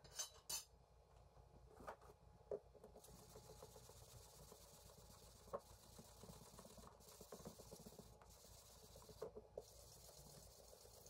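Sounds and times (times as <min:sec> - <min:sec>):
faint scratching: 0:03.0 - 0:11.0.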